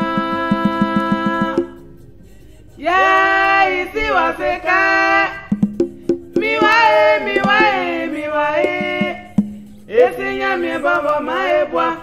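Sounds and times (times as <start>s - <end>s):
several voices singing together: 0.0s - 5.6s, 6.4s - 12.0s
sharp percussion hits: 5.5s - 8.0s.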